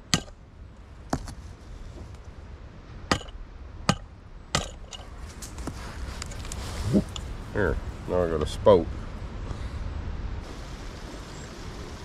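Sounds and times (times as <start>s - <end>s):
rock hammering metal pot rim: 0.0s - 0.4s, 3.1s - 5.0s.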